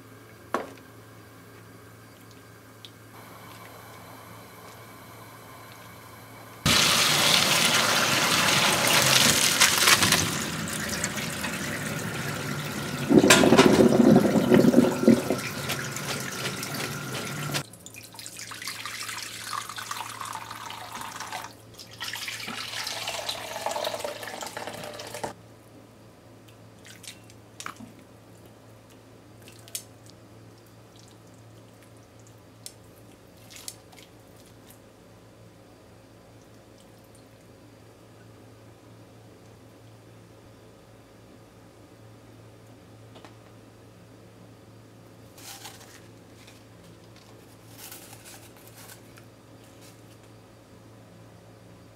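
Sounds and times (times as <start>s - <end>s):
water pouring into a sink: 6.7s - 25.3s.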